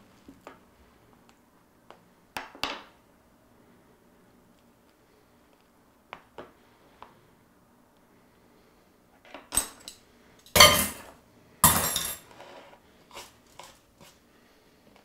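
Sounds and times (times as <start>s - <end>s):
cutlery clanking into metal bowl: 10.5s - 12.3s.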